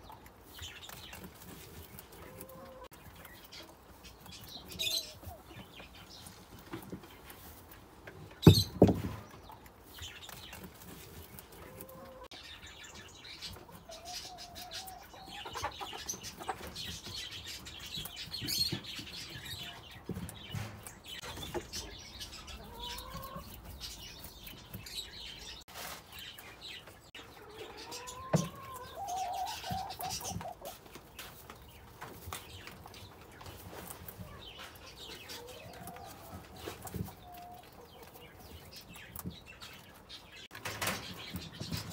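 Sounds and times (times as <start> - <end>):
birds calling: 0.0 - 41.9.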